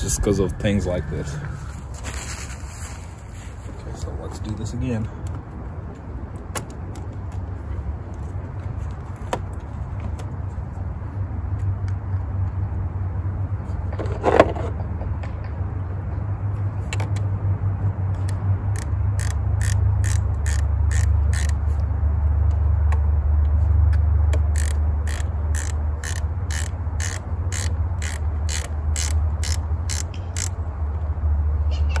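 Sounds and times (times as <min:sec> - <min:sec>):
low hum: 0:00.0 - 0:03.9
ratchet wrench clicking: 0:18.2 - 0:21.8, 0:24.5 - 0:30.6.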